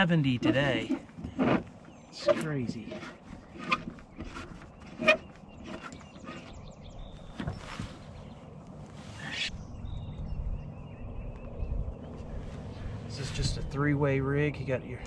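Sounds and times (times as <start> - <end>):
low rumble: 8.7 - 14.5.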